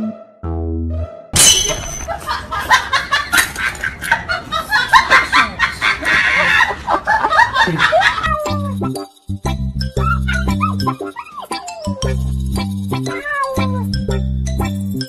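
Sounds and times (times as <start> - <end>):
dog whining and yelping: 10.0 - 12.3, 13.1 - 13.8.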